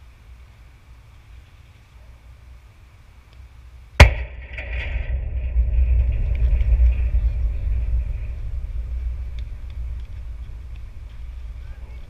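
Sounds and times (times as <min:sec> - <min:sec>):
low rumbling: 0:04.0 - 0:12.0.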